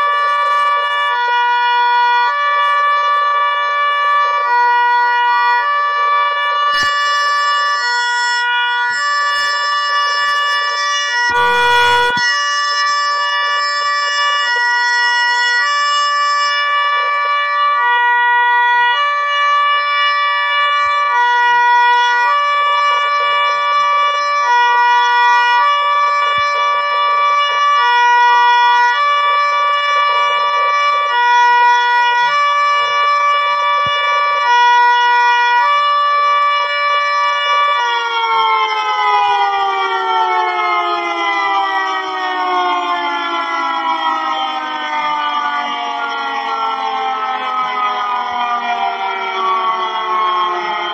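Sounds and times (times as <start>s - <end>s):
two-tone cartoon siren: 0.0s - 50.9s.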